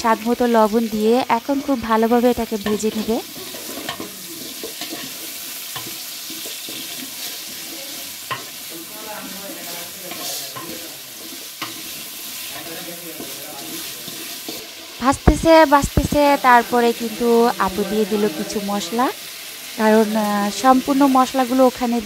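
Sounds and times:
vegetables sizzling in hot oil: 0:00.0 - 0:22.0
wooden spatula scraping a pot: 0:02.6 - 0:15.0.

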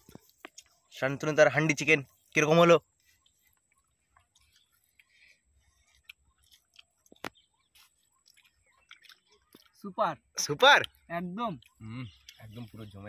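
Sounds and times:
soft chewing: 0:00.0 - 0:01.0, 0:02.0 - 0:13.0.

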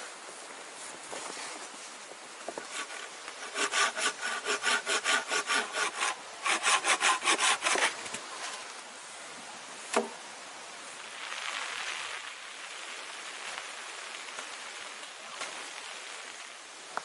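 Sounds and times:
hand saw cutting log: 0:02.5 - 0:08.2.

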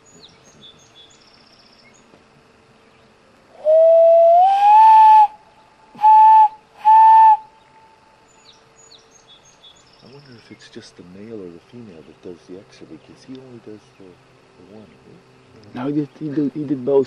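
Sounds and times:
loon calling: 0:03.6 - 0:08.0.

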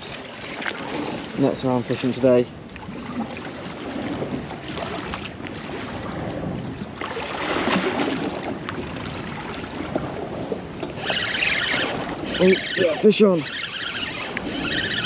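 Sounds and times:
water lapping against boat hull: 0:00.0 - 0:15.0
wind on microphone: 0:00.0 - 0:15.0.

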